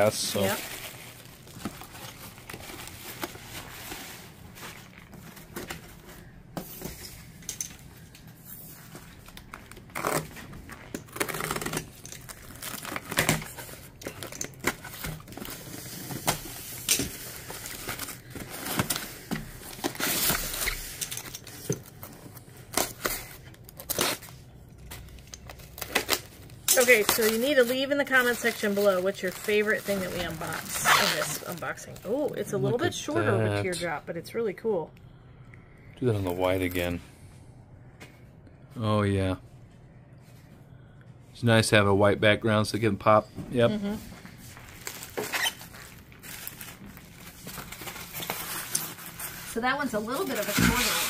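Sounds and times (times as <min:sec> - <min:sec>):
bubble wrap crinkling: 0:00.0 - 0:06.4, 0:07.2 - 0:32.6, 0:44.0 - 0:51.0.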